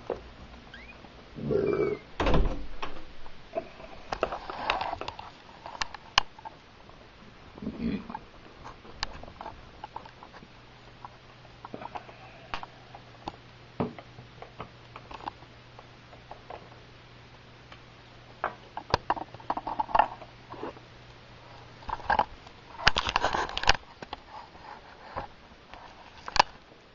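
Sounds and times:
rustling: 2.6 - 13.1.

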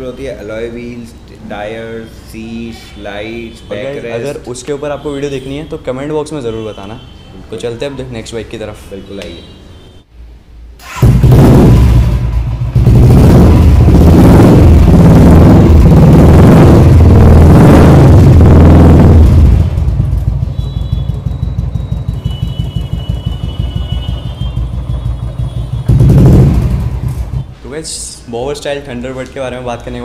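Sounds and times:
motorcycle engine revving and idling: 10.8 - 27.5.

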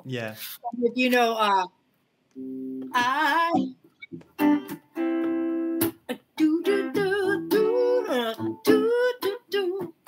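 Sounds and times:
guitar plucked melody: 2.4 - 10.0.

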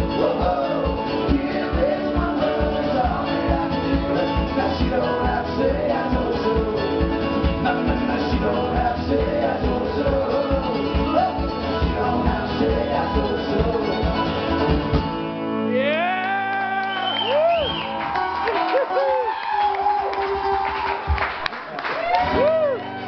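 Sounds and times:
person singing: 0.0 - 14.6
acoustic string band playing bluegrass: 0.0 - 15.9.

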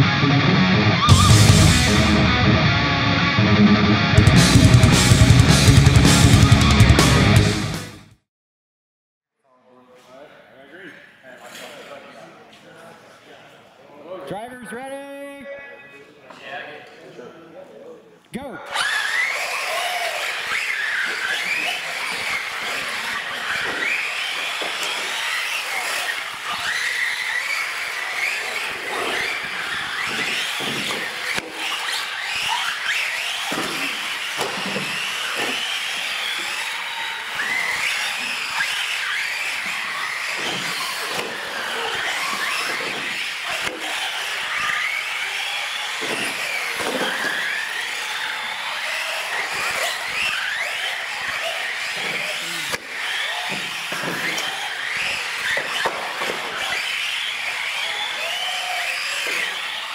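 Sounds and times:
small electric motors whining: 18.7 - 59.9
tyre squeals: 18.7 - 59.9.

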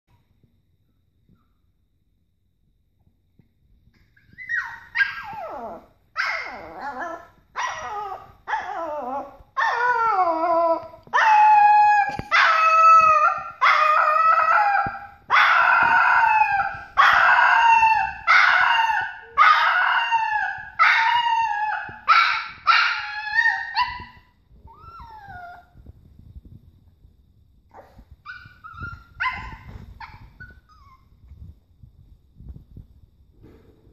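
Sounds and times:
puppy howling: 4.4 - 25.7.

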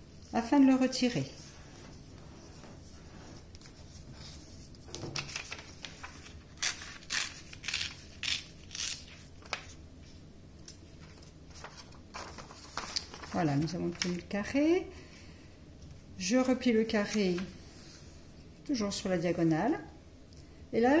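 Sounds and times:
paper being folded and creased: 2.4 - 14.3.

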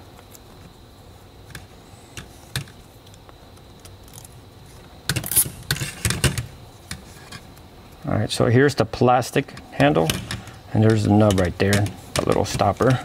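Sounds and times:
zip tie ratcheting: 5.2 - 5.8.

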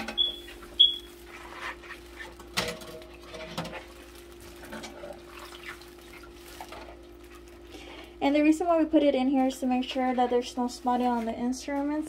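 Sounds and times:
water sloshing: 0.0 - 8.1
faint steady hum: 0.0 - 12.0.

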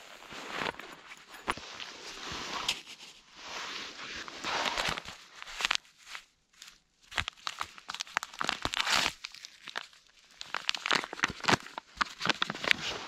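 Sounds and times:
foil sachet crinkling and tearing: 4.4 - 13.0.

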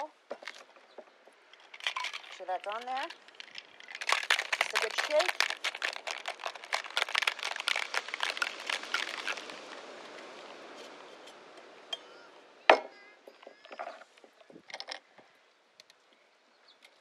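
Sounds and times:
metal shaker clank: 1.6 - 9.5
ice rattling in cocktail shaker: 1.6 - 11.2.

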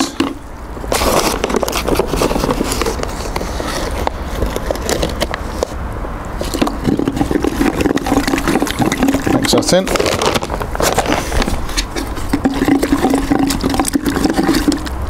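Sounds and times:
trowel scraping cement powder: 0.9 - 5.8.

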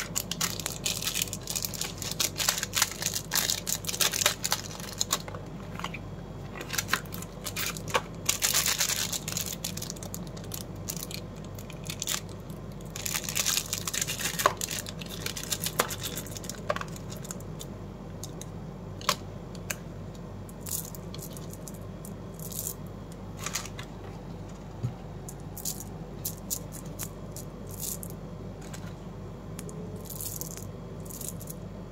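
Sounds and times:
candies clicking and rattling: 0.0 - 5.4, 6.6 - 17.4, 20.6 - 21.8, 25.6 - 28.2, 30.0 - 31.6
plastic wrappers crinkling and tearing: 0.0 - 5.4, 6.6 - 17.4.

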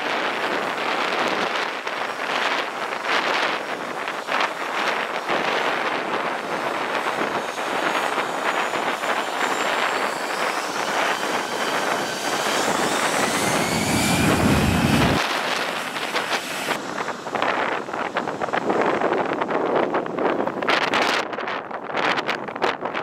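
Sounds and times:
jet engines running: 0.0 - 21.2
wind noise on microphone: 0.0 - 23.0
rising engine whine: 0.2 - 20.7
low rumble: 8.0 - 19.8.

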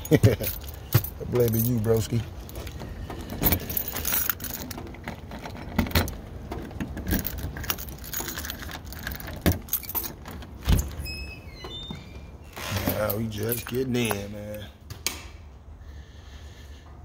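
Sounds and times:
keys jangling: 0.0 - 11.9, 12.7 - 14.6
door squeaking open: 10.6 - 13.2.

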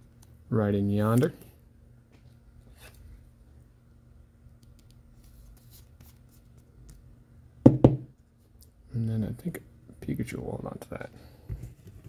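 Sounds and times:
sharp knocks: 7.7 - 8.1.

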